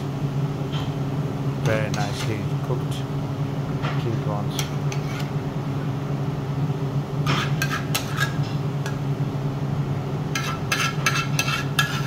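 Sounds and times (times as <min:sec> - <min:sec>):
low machine hum: 0:00.0 - 0:12.0
metal ladle scraping a pan: 0:04.9 - 0:05.4, 0:07.2 - 0:08.4, 0:10.3 - 0:12.0.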